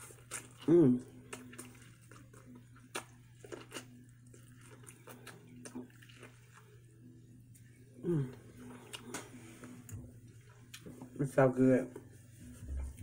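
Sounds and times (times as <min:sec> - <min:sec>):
corn on the cob being chewed: 0:00.0 - 0:06.8.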